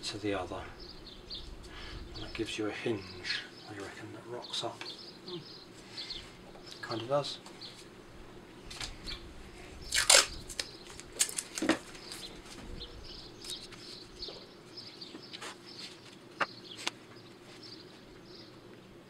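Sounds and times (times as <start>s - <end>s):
faint steady hum: 0.0s - 19.0s
knocks of small wooden pieces: 10.0s - 11.9s.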